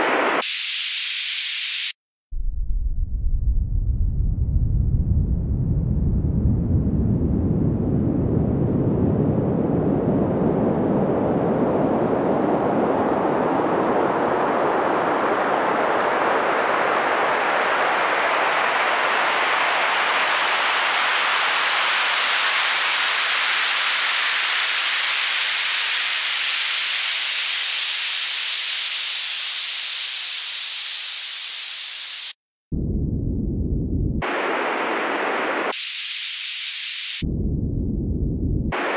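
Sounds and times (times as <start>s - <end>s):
noise sweep rising in pitch: 32.7s - 38.9s.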